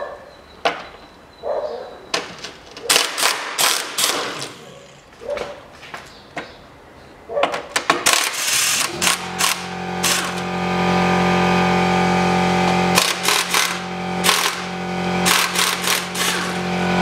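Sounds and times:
cordless power tool motor: 2.9s - 5.1s, 8.1s - 17.0s.

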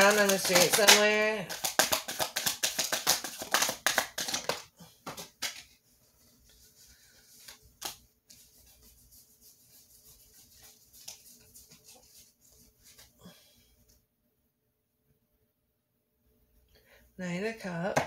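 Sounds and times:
tarot cards shuffling: 0.0s - 13.1s.

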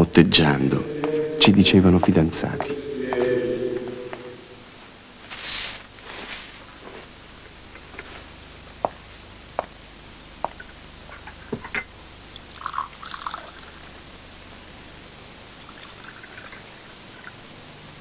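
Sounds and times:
steady hum: 0.0s - 18.0s
tape hiss: 0.0s - 18.0s
rustle: 5.2s - 7.2s.

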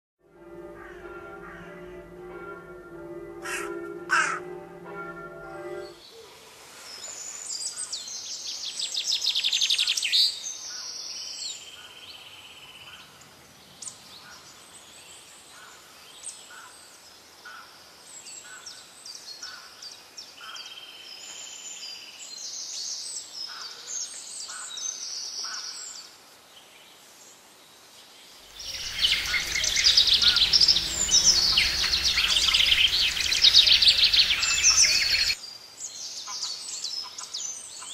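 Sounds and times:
small birds chirping and trilling: 28.5s - 37.9s.

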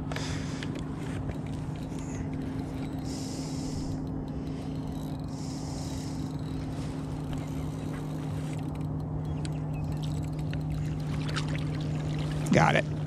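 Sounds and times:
electric motor humming: 0.6s - 12.6s.

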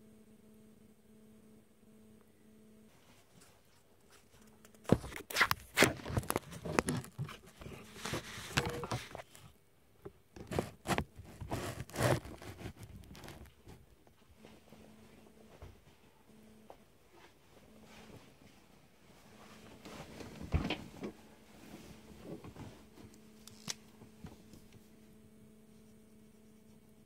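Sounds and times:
faint steady hum: 0.0s - 27.0s
rustling scraping and knocking: 3.2s - 9.6s, 10.4s - 13.8s.

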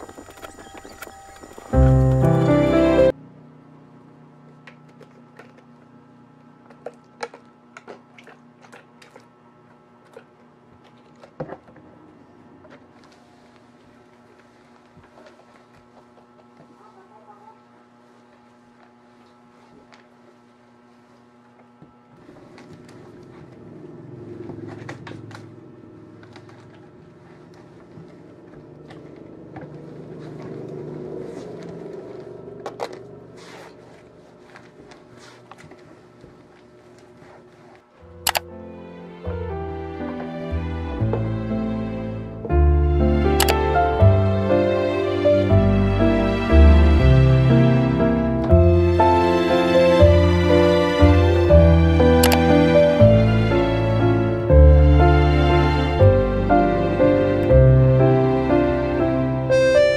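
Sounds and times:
faint low hum: 0.0s - 38.8s.

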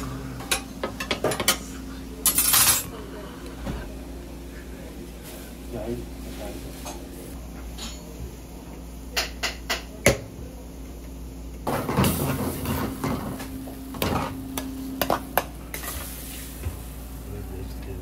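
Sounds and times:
food sizzling: 14.4s - 17.4s.

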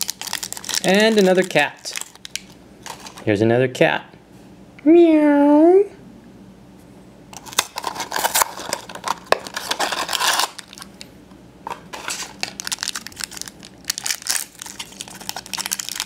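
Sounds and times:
foil bag crinkling and tearing: 0.0s - 3.2s, 7.4s - 11.0s, 11.9s - 16.0s.

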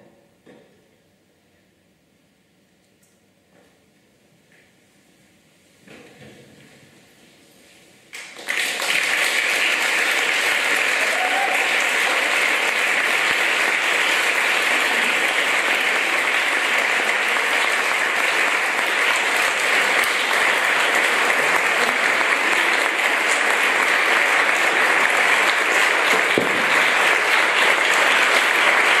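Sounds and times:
audience applauding: 8.1s - 29.0s.

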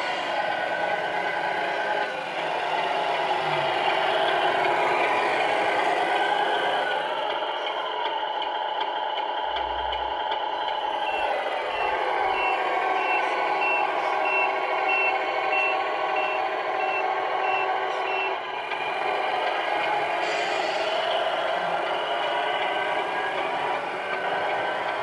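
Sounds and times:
simulated engine hum: 0.0s - 25.0s
reversing beeper: 10.6s - 18.4s.

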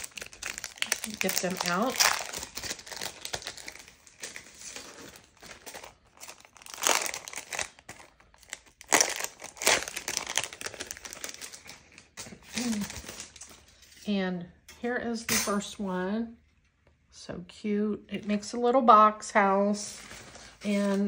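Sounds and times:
packaging crinkling: 0.0s - 13.8s.

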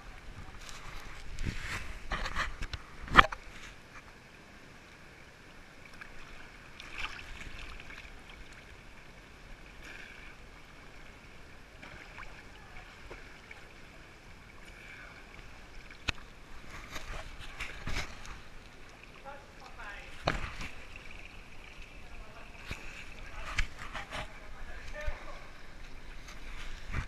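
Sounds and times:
water sloshing and splashing: 5.4s - 27.0s.

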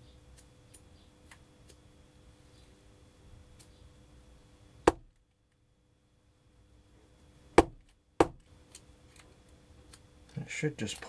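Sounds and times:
sharp knocks on workbench: 4.9s - 5.1s, 7.6s - 8.4s.

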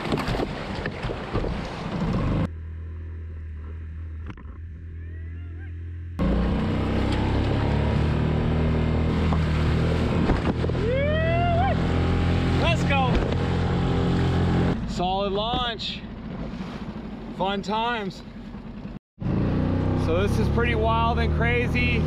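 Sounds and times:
rushing water and surf: 0.0s - 2.5s, 6.8s - 17.7s
outboard motor running: 0.0s - 22.0s
bird calling: 4.8s - 5.9s.

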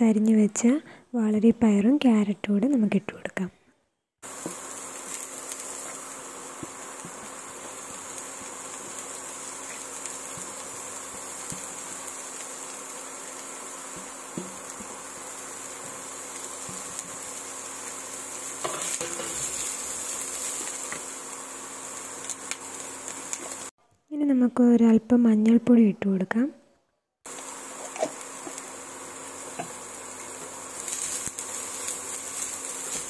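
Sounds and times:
vegetables sizzling in oil: 4.2s - 23.8s, 27.3s - 33.0s.

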